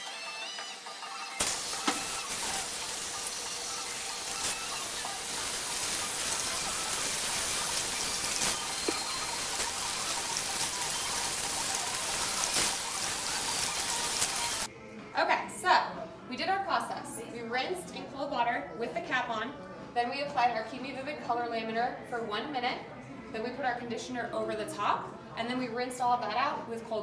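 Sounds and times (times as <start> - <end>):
water spraying from hand sprayer: 1.4 - 14.7.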